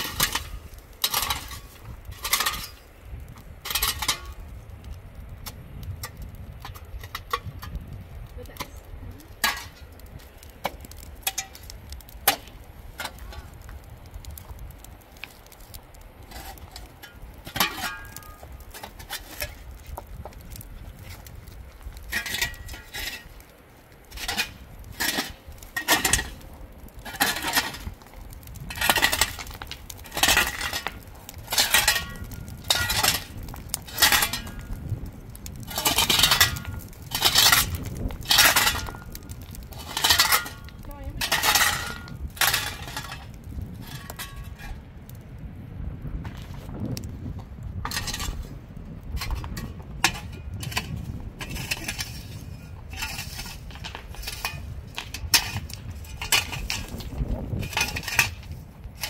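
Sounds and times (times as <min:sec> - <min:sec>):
shovel digging stony soil: 0:00.0 - 0:02.8, 0:27.0 - 0:28.0, 0:35.7 - 0:43.2, 0:49.2 - 0:58.4.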